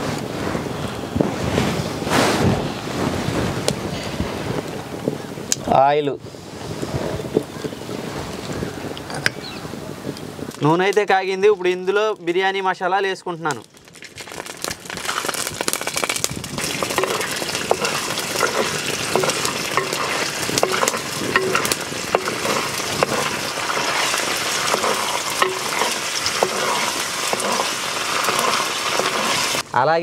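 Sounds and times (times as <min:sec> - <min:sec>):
spices sizzling in hot oil: 0:13.8 - 0:29.6
wooden spatula stirring in clay pot: 0:14.2 - 0:29.6.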